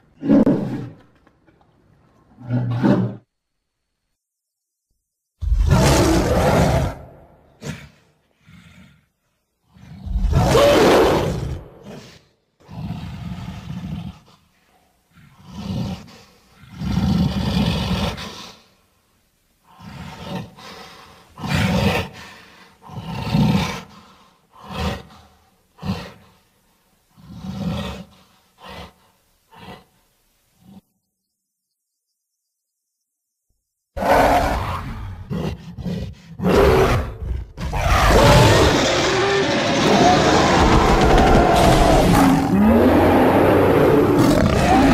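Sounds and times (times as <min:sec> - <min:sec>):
creature roars: 0:05.5 - 0:07.9, 0:10.0 - 0:12.1, 0:36.4 - 0:44.9
creature growls and grunts: 0:34.0 - 0:44.9.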